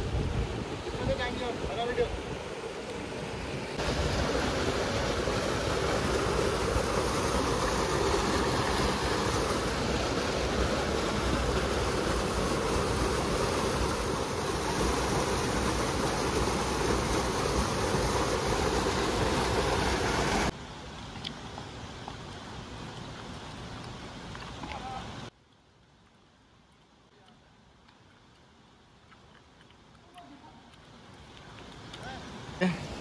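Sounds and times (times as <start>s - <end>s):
river rushing over rocks: 0.0s - 20.6s.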